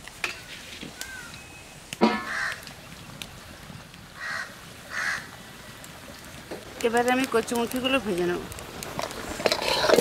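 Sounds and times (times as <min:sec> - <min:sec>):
crow cawing: 0:01.0 - 0:01.3, 0:02.2 - 0:02.6, 0:04.2 - 0:05.3.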